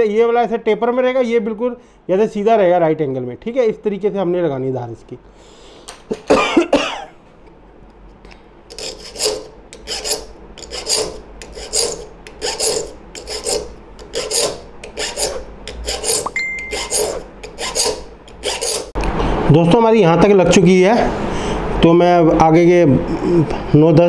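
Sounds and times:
file rasping on saw teeth: 0:08.7 - 0:19.0.

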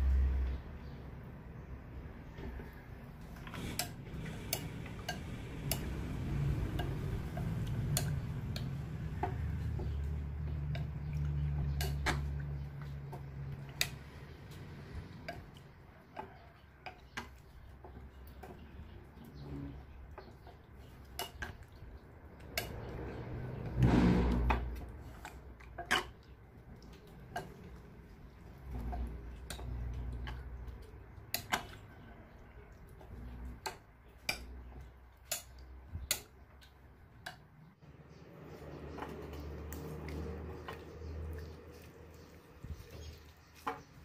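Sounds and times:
spoon stirring slime: 0:03.2 - 0:37.4, 0:38.4 - 0:44.0.

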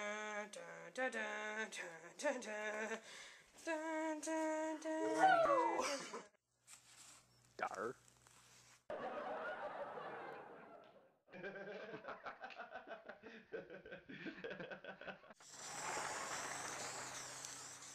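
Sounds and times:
people laughing: 0:08.9 - 0:17.1
spray paint can hissing: 0:15.4 - 0:17.9.

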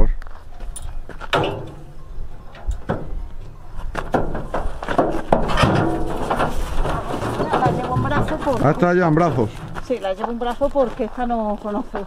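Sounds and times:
trailer knocks and clunks: 0:01.2 - 0:10.4.

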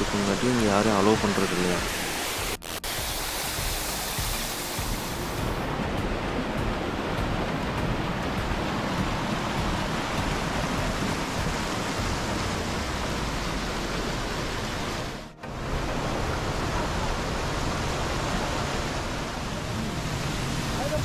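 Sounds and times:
stream rushing over rocks: 0:00.0 - 0:21.0.

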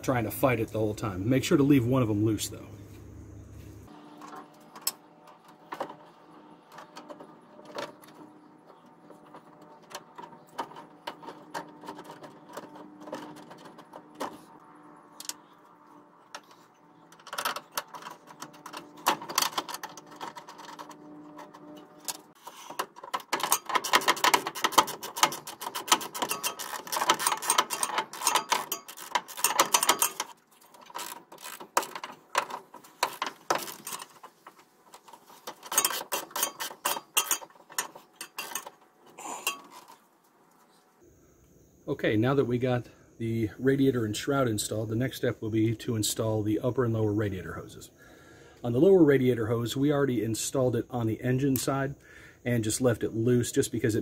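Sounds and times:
tools and bolts clinking: 0:04.2 - 0:14.6, 0:15.2 - 0:40.0
hand ratchet clicking: 0:22.5 - 0:34.2.

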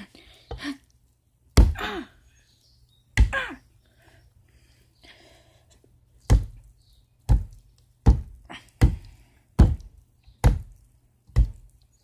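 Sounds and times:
hammer thunking into thick mixture: 0:01.6 - 0:01.8, 0:06.3 - 0:06.6, 0:07.3 - 0:11.7.

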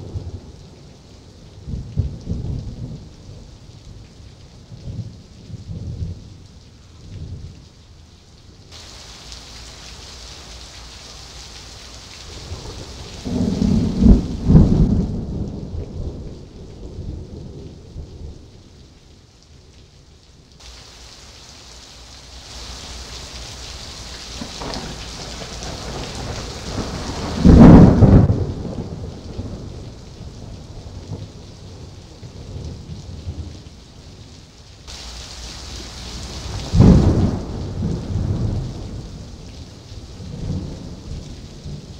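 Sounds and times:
heavy rain hissing: 0:00.0 - 0:18.9, 0:20.5 - 0:41.9
thunder claps: 0:12.3 - 0:16.3, 0:22.9 - 0:29.7, 0:34.9 - 0:39.0.

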